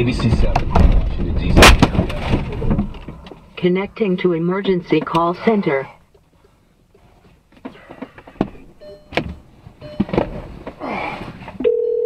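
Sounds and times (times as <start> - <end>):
steady telephone tone: 11.6 - 12.0.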